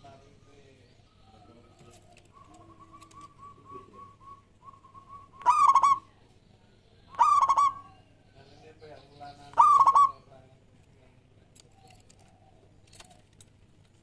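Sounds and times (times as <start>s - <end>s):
dove singing bubbling coos: 1.0s - 6.2s, 7.1s - 8.1s, 9.6s - 10.3s
fainter lower dove calls: 1.2s - 6.1s, 7.1s - 8.0s, 9.5s - 10.3s.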